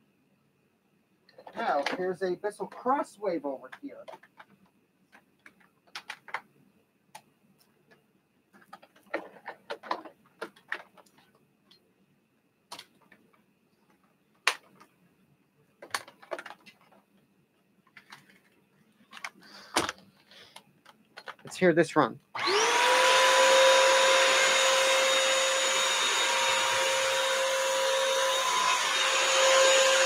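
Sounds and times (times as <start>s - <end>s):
handling clicks and knocks: 19.1s - 21.6s.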